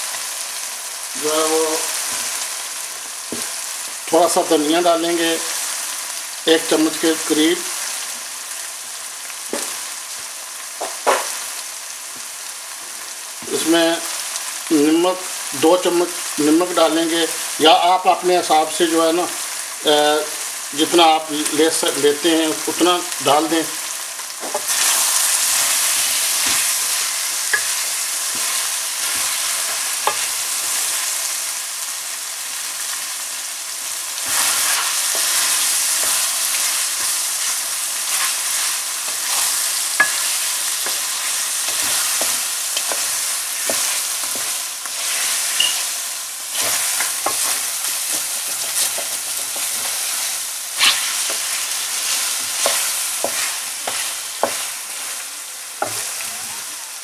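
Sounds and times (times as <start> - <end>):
meat sizzling in oil: 0.0 - 57.0
spatula scraping metal pan: 50.8 - 54.6.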